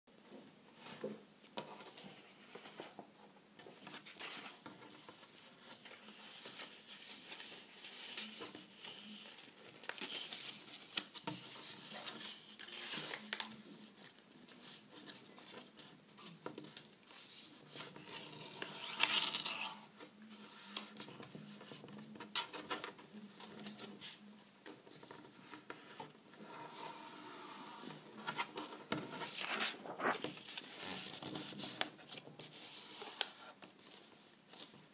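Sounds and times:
card rustling and crinkling: 0:03.7 - 0:34.9.

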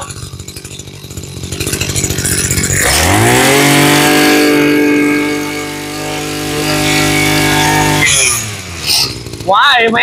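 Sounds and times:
brush cutter engine revving: 0:00.0 - 0:10.0.

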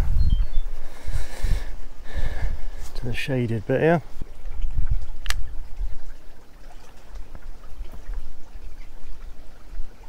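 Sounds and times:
wind on microphone: 0:00.0 - 0:02.8, 0:04.2 - 0:06.2
river water trickling and lapping: 0:01.7 - 0:10.0.

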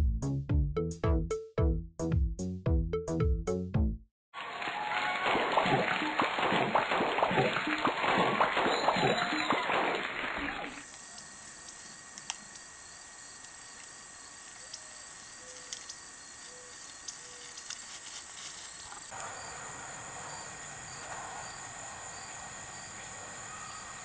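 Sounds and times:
insects droning: 0:10.8 - 0:24.0.

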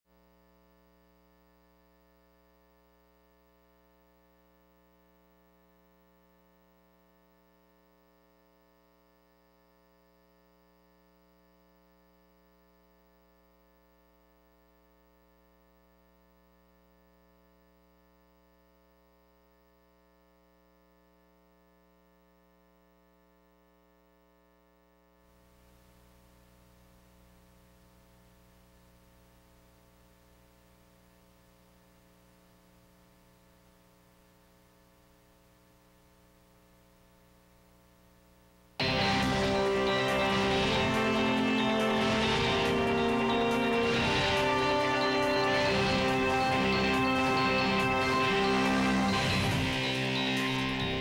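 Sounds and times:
faint electrical hum: 0:00.1 - 0:38.8.

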